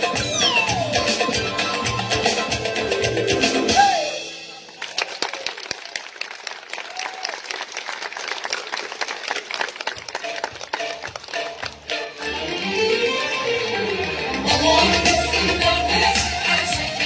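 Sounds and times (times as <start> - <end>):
music: 0.0 - 4.8, 9.9 - 17.0
audience applauding: 4.6 - 14.7.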